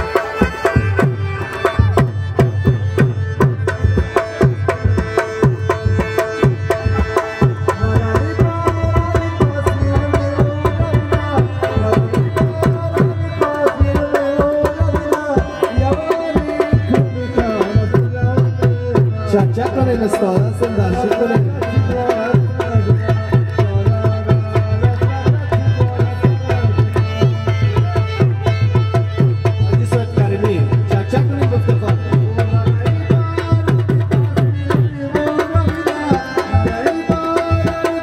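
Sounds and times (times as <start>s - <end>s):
tabla drumming: 0.0s - 38.0s.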